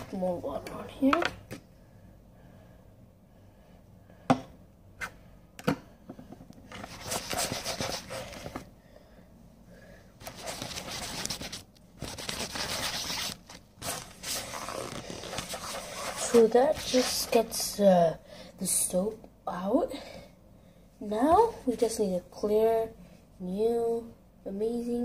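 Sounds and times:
hand scrubbing wet pencil case: 0:10.2 - 0:17.4.

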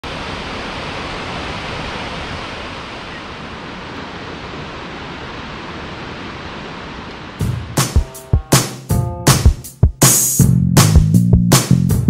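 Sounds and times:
waterfall rushing: 0:00.0 - 0:08.5.

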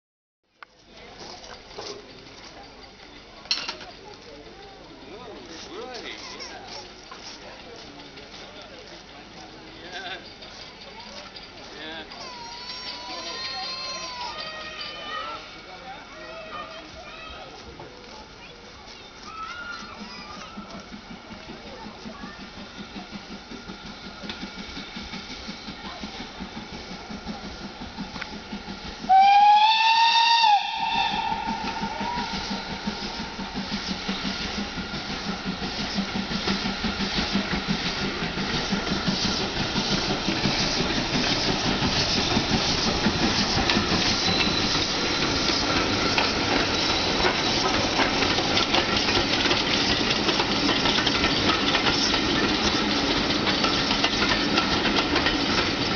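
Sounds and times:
train running with rhythmic beat: 0:00.8 - 0:55.9
steam locomotive whistle: 0:29.0 - 0:33.5.

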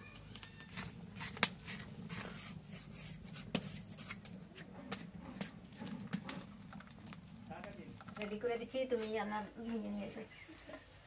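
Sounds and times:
knife scraping skin: 0:00.7 - 0:06.4.

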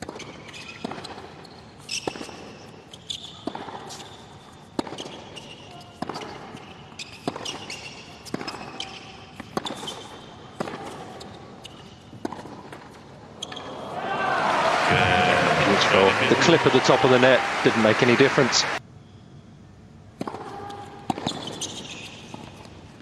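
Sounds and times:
tennis ball bouncing: 0:00.0 - 0:13.7, 0:20.2 - 0:22.7
shoes squeaking on court: 0:00.0 - 0:13.9, 0:20.2 - 0:23.0
racket hitting tennis ball: 0:03.4 - 0:04.1, 0:04.7 - 0:13.7, 0:20.2 - 0:22.7.

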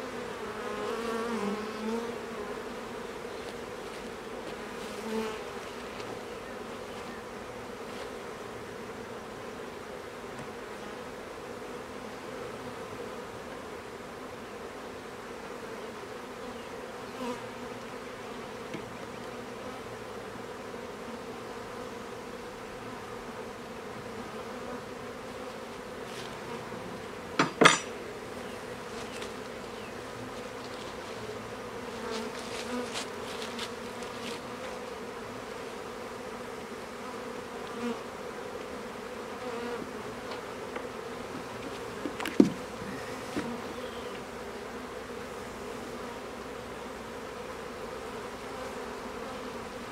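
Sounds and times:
bees buzzing: 0:00.0 - 0:49.9
knock of hive equipment: 0:27.4 - 0:28.0, 0:42.0 - 0:43.6.

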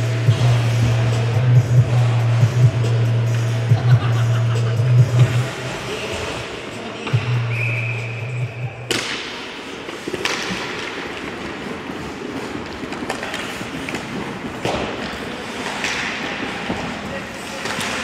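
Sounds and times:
hockey play on ice: 0:00.0 - 0:02.4, 0:05.1 - 0:18.0
sticks and puck knocking: 0:08.9 - 0:18.0.

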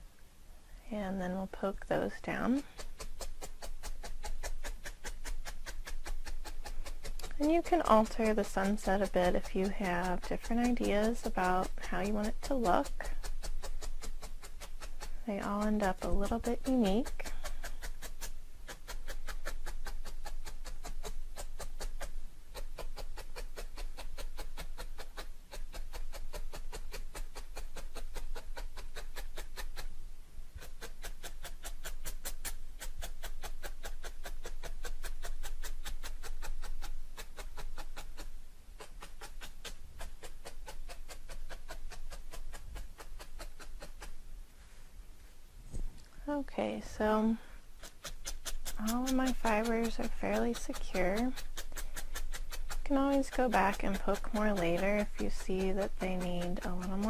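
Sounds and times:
felting needle tapping into foam: 0:01.6 - 0:30.0, 0:30.6 - 0:44.2, 0:47.2 - 0:57.0.

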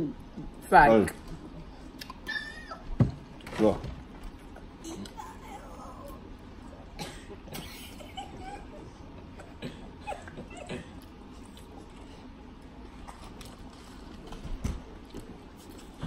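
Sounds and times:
mouth clicks and smacks: 0:01.9 - 0:02.2.

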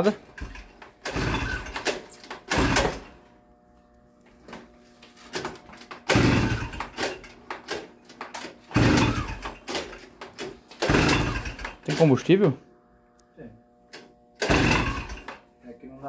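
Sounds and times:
moped engine being cranked: 0:00.4 - 0:03.1, 0:05.4 - 0:12.2, 0:14.4 - 0:15.4.

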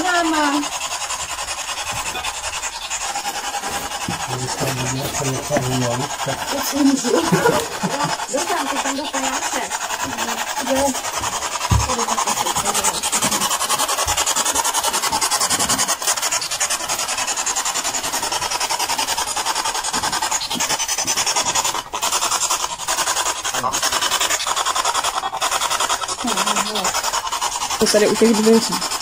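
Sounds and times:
pulsing radio static: 0:02.0 - 0:18.1.

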